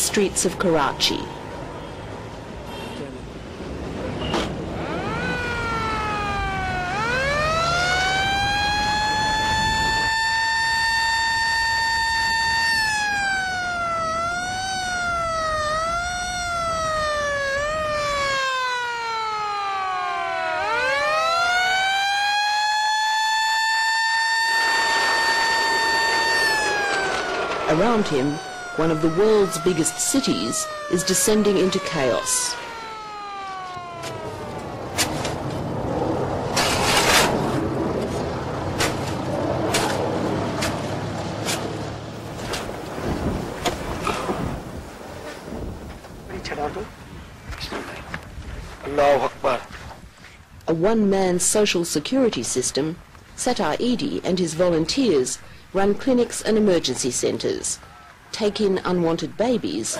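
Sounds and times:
siren wailing: 0:00.0 - 0:02.5, 0:04.6 - 0:39.1
road and engine rumble: 0:00.0 - 0:59.9.

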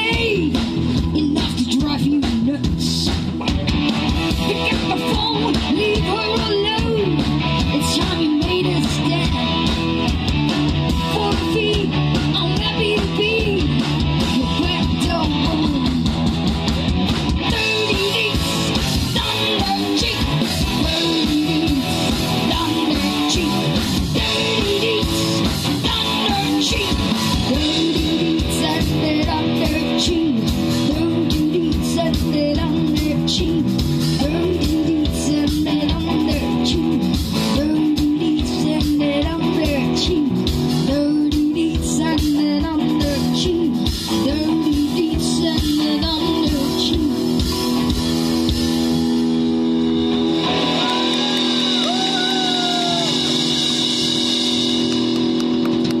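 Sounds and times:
woman singing: 0:00.0 - 0:03.3, 0:04.4 - 0:09.7, 0:10.9 - 0:16.1, 0:17.4 - 0:47.5
live rock band playing: 0:00.0 - 0:56.0.

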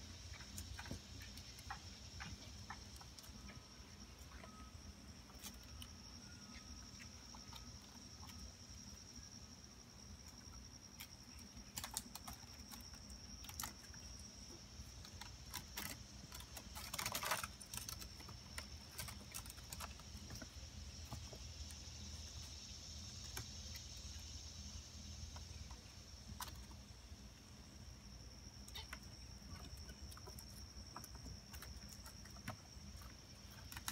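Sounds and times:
faint high whine: 0:00.0 - 0:33.9
kittens' claws scratching wicker: 0:11.0 - 0:22.5.

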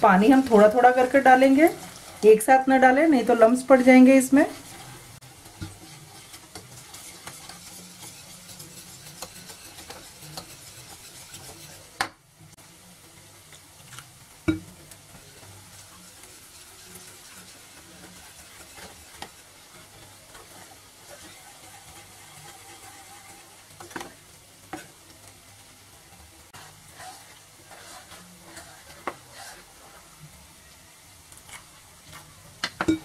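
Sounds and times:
wire whisk scraping a plastic bowl: 0:03.8 - 0:12.0, 0:16.2 - 0:24.9, 0:26.6 - 0:30.0.

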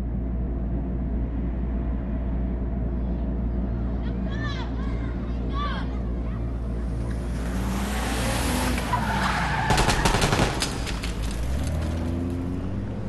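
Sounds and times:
low steady drone: 0:00.0 - 0:08.0
car skidding: 0:07.2 - 0:13.0
rapid gunshots: 0:09.7 - 0:11.2.

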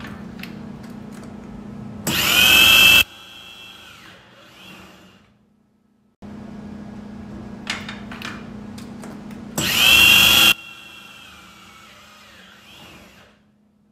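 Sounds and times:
drill bit screeching into metal: 0:02.1 - 0:03.0, 0:09.6 - 0:12.7
electric drill humming: 0:02.1 - 0:05.3, 0:09.6 - 0:13.4
high whine sinking in pitch: 0:02.2 - 0:03.0.

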